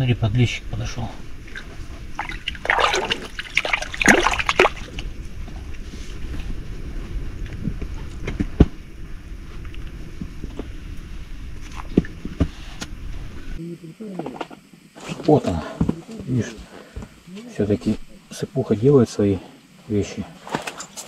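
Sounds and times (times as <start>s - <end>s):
water sloshing and splashing: 1.3s - 6.2s.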